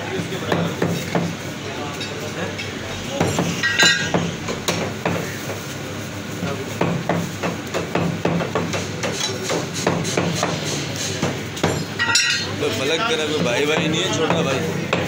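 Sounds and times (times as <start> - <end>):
meat cleaver chopping on wood block: 6.8 - 11.8.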